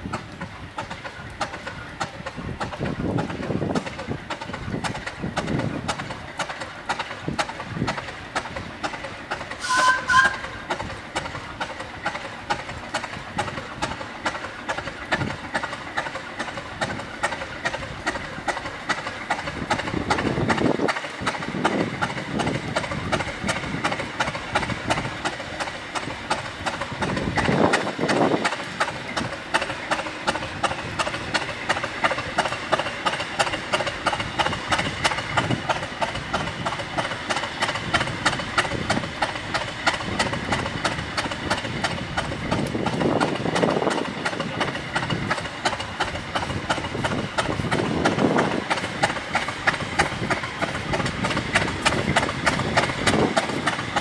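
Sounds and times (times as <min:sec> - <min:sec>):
diesel locomotive engine idling: 0:00.0 - 0:54.0
high two-note sound: 0:09.6 - 0:10.4.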